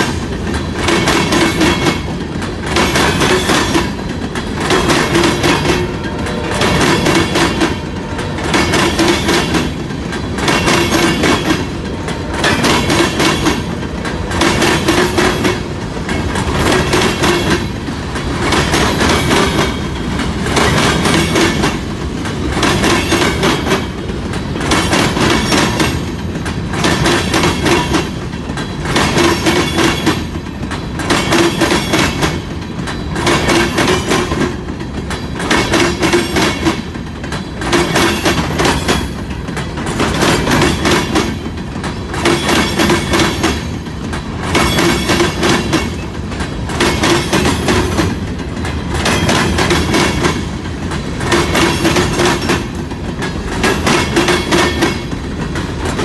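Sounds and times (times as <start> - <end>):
wheels clicking over rail joints: 0.0 - 56.0.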